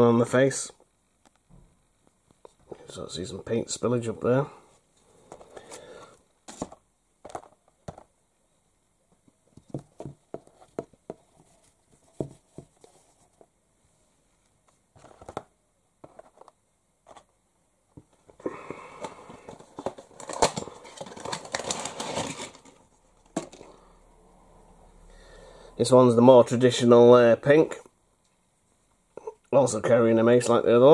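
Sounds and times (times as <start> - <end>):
packaging crinkling: 19.0 - 23.7.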